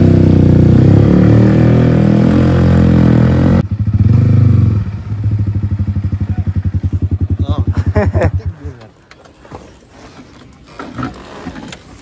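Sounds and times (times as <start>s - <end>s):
motorcycle engine running loud: 0.0s - 8.7s.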